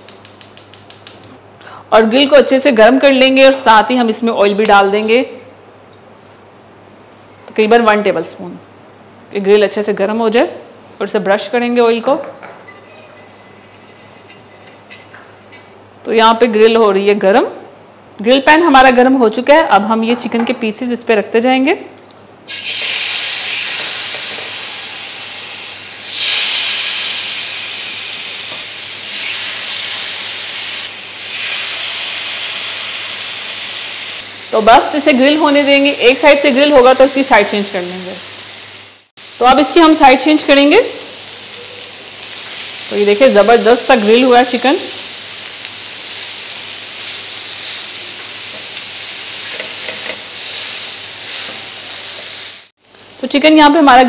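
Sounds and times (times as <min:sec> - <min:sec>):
chicken sizzling on grill pan: 0:22.5 - 0:34.6, 0:37.7 - 0:52.7.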